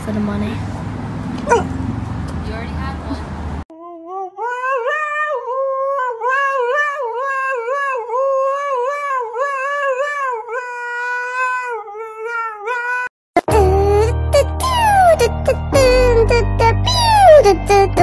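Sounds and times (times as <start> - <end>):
music: 13.4 - 18.0.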